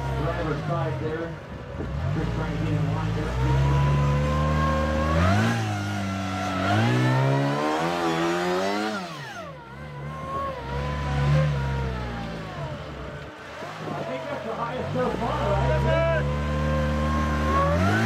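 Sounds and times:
buggy engine revving: 0.0s - 18.0s.

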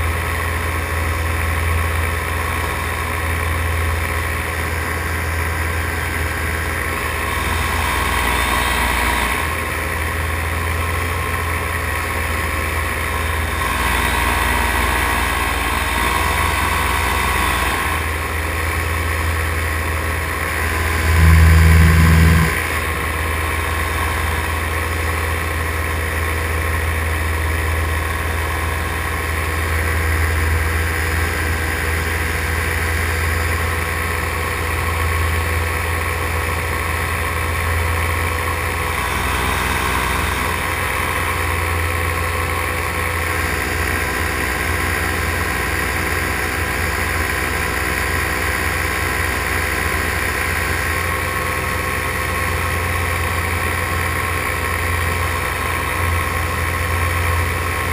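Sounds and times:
paramotor engine drone: 0.0s - 57.9s.

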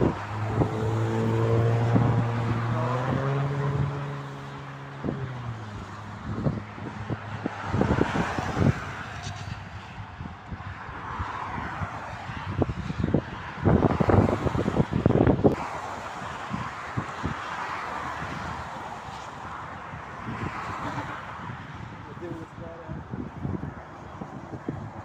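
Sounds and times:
passing vehicle engine droning: 0.0s - 17.0s
road traffic noise: 0.0s - 25.0s
wind buffeting microphone: 0.0s - 25.0s.

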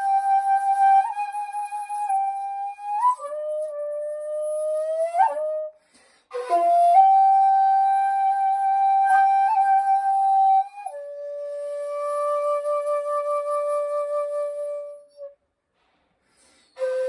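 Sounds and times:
bamboo flute long notes: 0.0s - 15.4s, 16.7s - 17.0s.

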